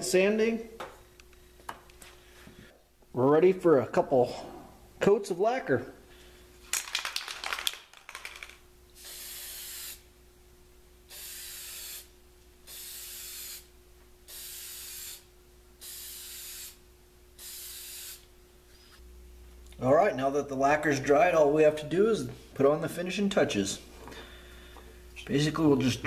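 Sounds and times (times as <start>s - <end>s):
aerosol spray hissing: 9.0s - 10.1s, 11.1s - 12.1s, 12.7s - 13.7s, 14.3s - 16.8s, 17.4s - 18.3s.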